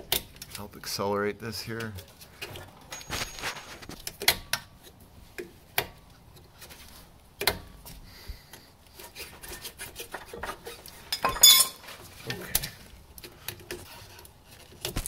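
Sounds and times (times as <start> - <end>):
metal scraping and rubbing: 2.1 - 4.0, 9.0 - 12.2.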